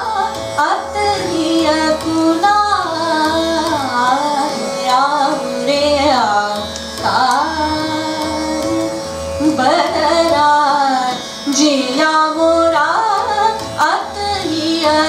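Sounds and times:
electronic tanpura drone: 0:00.0 - 0:15.0
woman singing classical vocals: 0:00.0 - 0:15.0.

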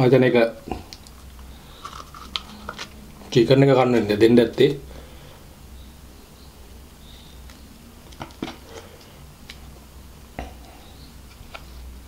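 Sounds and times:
low steady hum: 0:00.0 - 0:12.0
paper wrapper crinkling: 0:01.8 - 0:03.0.

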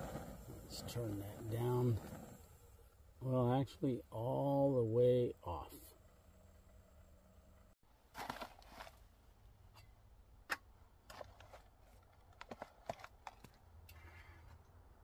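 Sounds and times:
food pouch rustling: 0:08.1 - 0:09.1, 0:11.1 - 0:13.6
foil crinkles and clicks: 0:08.2 - 0:09.0.

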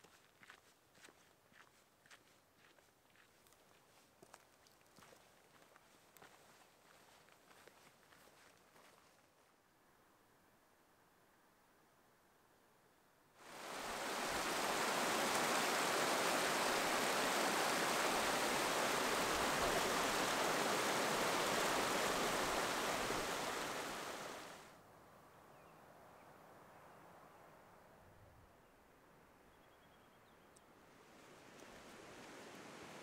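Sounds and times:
faint hiss: 0:10.5 - 0:29.5, 0:30.5 - 0:33.0
stream rushing over rocks: 0:13.4 - 0:24.7, 0:31.4 - 0:33.0.

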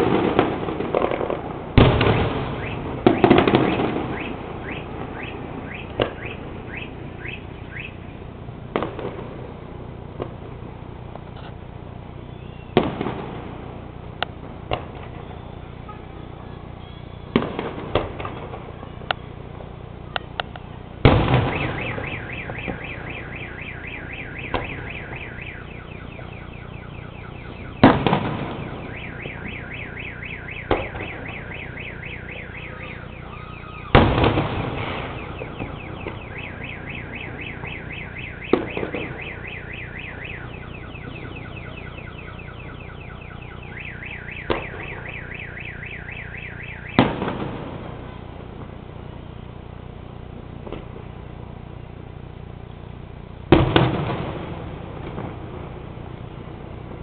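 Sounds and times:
fireworks booming: 0:00.0 - 0:49.2, 0:50.3 - 0:51.6, 0:53.4 - 0:57.0
car alarm warbling: 0:02.0 - 0:08.3, 0:15.1 - 0:19.4, 0:21.1 - 0:47.3.

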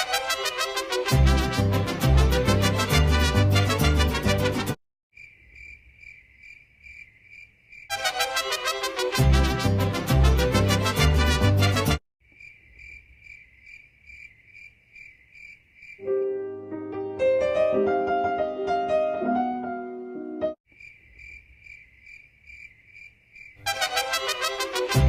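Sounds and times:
cricket chirping: 0:05.1 - 0:08.0, 0:12.2 - 0:16.1, 0:20.7 - 0:24.3
piano music: 0:16.0 - 0:20.6.

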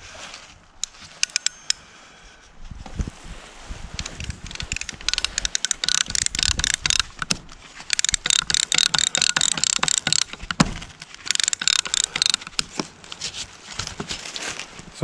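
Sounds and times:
ratchet strap tensioner clicking: 0:00.8 - 0:01.8, 0:04.0 - 0:13.4.

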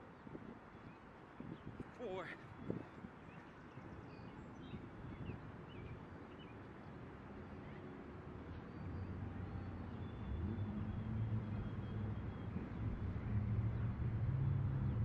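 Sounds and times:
passing traffic engine rumble: 0:04.9 - 0:15.0.

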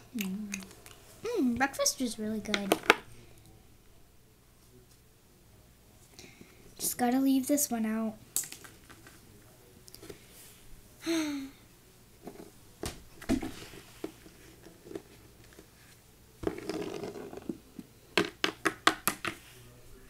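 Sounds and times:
girl sighing: 0:01.2 - 0:01.6, 0:11.0 - 0:11.6.

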